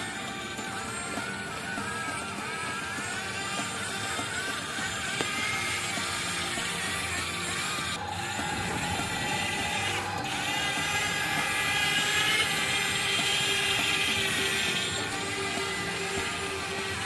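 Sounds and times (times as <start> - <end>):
toy electric motors whining: 0.0 - 17.0.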